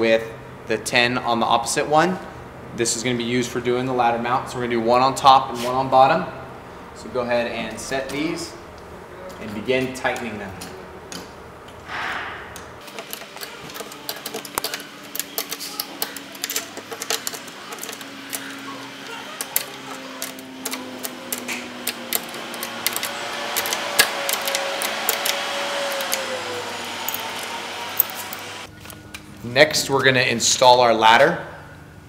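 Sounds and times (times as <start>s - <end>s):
wrenches clicking on metal: 12.8s - 28.4s.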